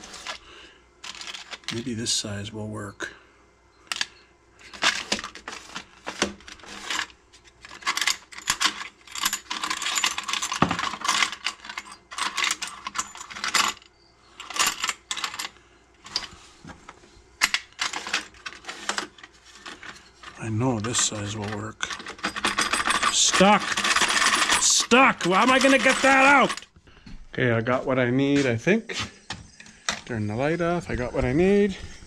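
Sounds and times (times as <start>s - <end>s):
metal washers jingling in drawer: 6.4s - 16.3s, 17.4s - 26.7s.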